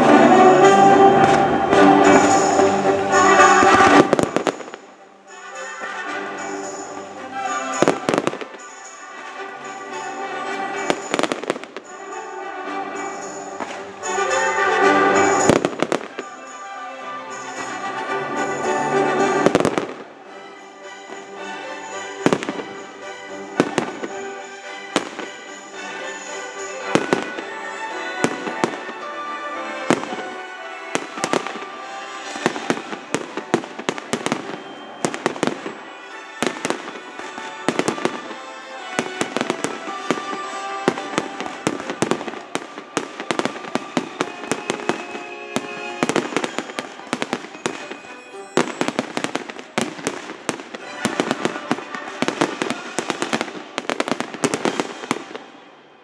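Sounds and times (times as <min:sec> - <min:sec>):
background music with held notes: 0:00.0 - 0:56.0
firework shells bursting: 0:01.2 - 0:09.4, 0:29.7 - 0:55.6.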